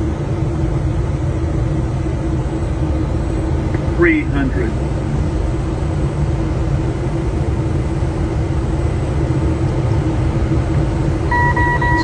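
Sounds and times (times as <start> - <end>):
airliner cockpit airflow and engine drone: 0.0 - 12.0
short electronic beep: 11.3 - 12.0.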